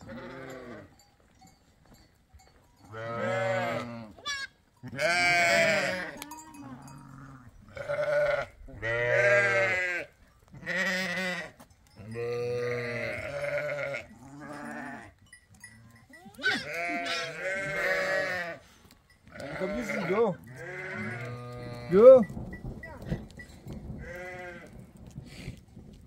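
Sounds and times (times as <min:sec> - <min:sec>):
goats bleating: 0:02.9 - 0:11.5, 0:12.2 - 0:15.1, 0:16.2 - 0:18.6, 0:19.3 - 0:22.3, 0:24.0 - 0:24.8.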